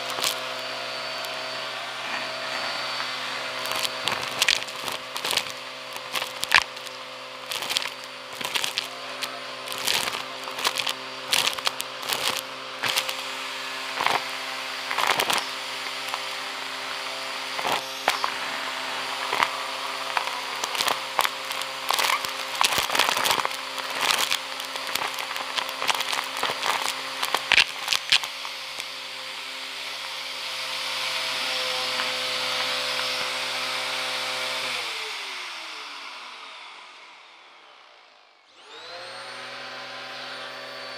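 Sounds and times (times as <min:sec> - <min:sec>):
debris crackling up hose: 0:00.0 - 0:35.3
vacuum cleaner motor hum: 0:00.0 - 0:40.9.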